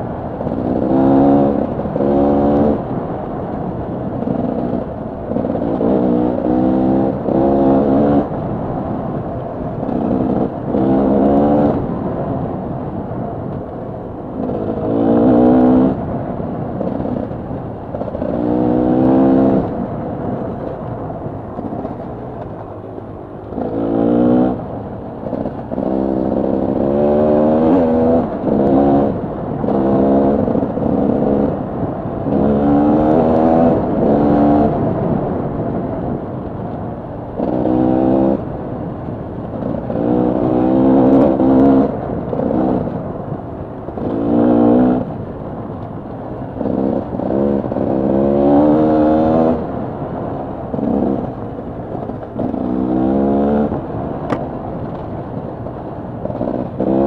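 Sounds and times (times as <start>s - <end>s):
dirt bike engine revving: 0.4s - 2.8s, 4.2s - 8.4s, 9.9s - 11.9s, 14.4s - 16.0s, 18.0s - 19.7s, 23.5s - 24.6s, 25.2s - 35.0s, 37.4s - 38.4s, 39.5s - 42.9s, 44.0s - 45.1s, 46.6s - 49.8s, 50.7s - 51.3s, 52.0s - 54.4s, 56.2s - 57.0s.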